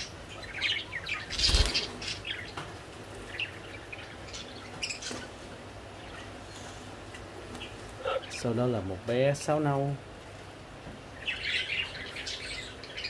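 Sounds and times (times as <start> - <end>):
bird wings fluttering in a cage: 1.3 - 2.2.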